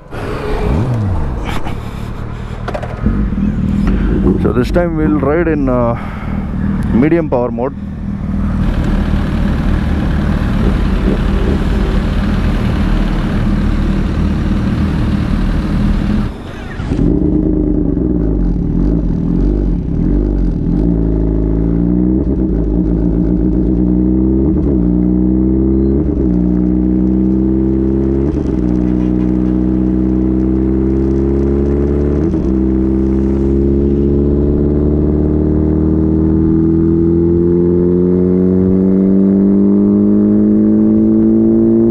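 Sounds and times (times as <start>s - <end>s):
motorcycle engine running loud: 2.7s - 41.9s.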